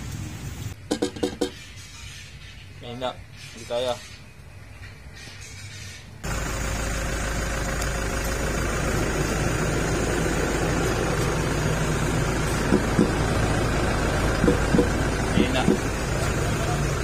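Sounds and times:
vehicle engine idling: 6.2 - 17.0
short knocks: 14.4 - 15.0, 15.6 - 15.9.

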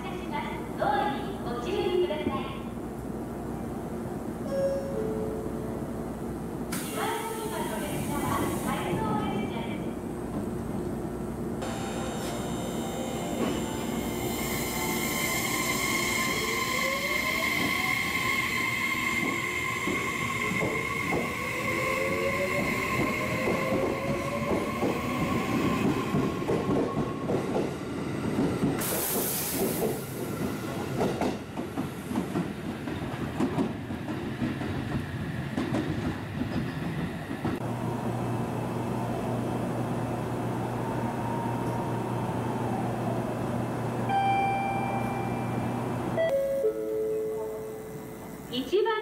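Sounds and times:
electric train motors whining: 45.6 - 48.7.

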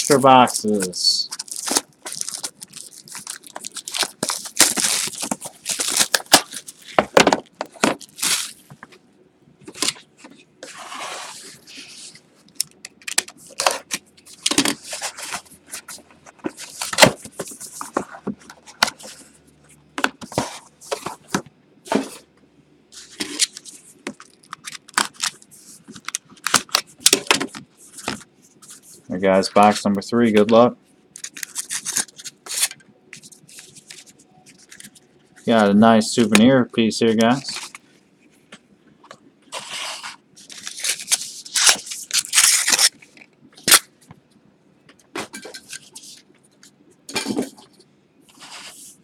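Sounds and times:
plastic wrapping crinkling and tearing: 0.0 - 8.7, 31.2 - 35.6, 39.6 - 43.9.

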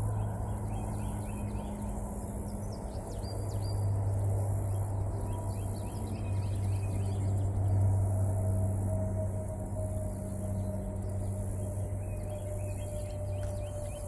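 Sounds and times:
small birds chirping: 0.0 - 8.1, 11.0 - 14.0
insects buzzing: 0.0 - 14.0
steady low hum: 0.0 - 14.0.

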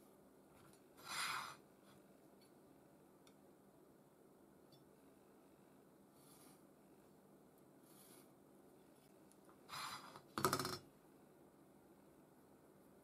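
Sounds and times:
faint rubs on work mat: 6.1 - 6.7, 7.8 - 10.2.

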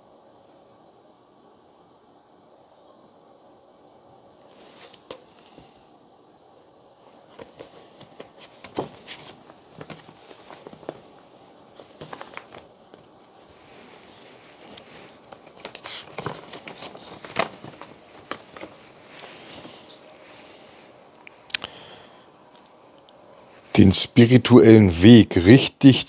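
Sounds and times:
rustling and crinkling: 4.5 - 5.8, 7.1 - 21.5.

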